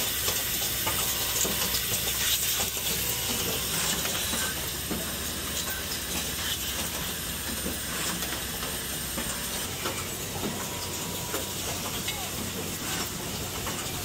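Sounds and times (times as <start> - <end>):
pneumatic hiss: 0.0 - 13.9.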